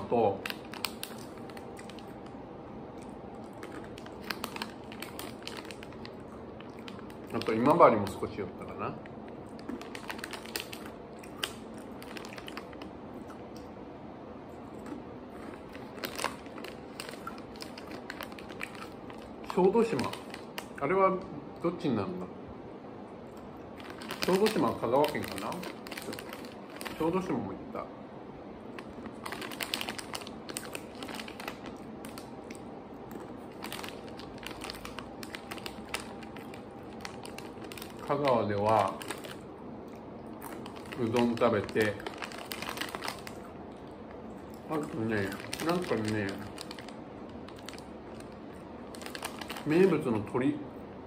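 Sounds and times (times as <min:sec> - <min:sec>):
plastic bag crinkling: 0:00.0 - 0:13.6, 0:14.9 - 0:21.3, 0:23.6 - 0:27.5, 0:28.6 - 0:50.2
crunchy sweet sticks being chewed: 0:00.4 - 0:08.2, 0:09.0 - 0:13.7, 0:14.5 - 0:20.8, 0:23.3 - 0:27.0, 0:28.7 - 0:49.7
crunchy snack chewing: 0:03.0 - 0:07.7, 0:09.4 - 0:13.7, 0:14.5 - 0:20.8.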